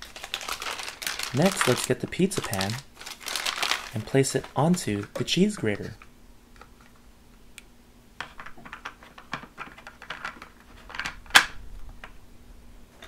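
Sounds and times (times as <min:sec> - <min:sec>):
plastic pieces clicking: 0:08.2 - 0:11.5.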